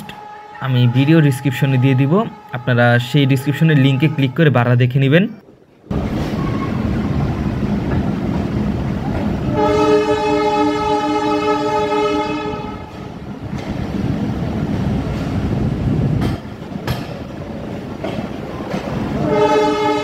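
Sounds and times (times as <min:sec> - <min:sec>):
locomotive horn blast: 0:00.0 - 0:04.9, 0:09.4 - 0:13.2, 0:19.1 - 0:20.0
train wheels rumbling on track: 0:05.4 - 0:20.0.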